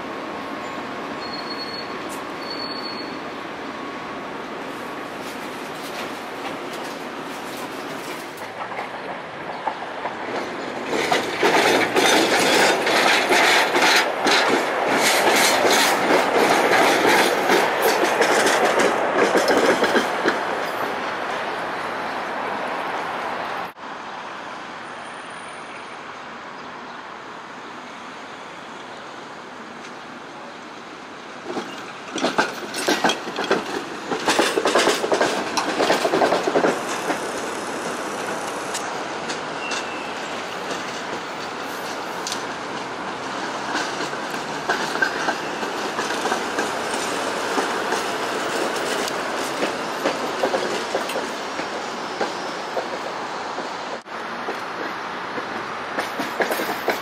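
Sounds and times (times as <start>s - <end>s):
tram rolling rumble: 0.0s - 57.0s
tram wheels clattering: 4.6s - 22.2s, 31.1s - 57.0s.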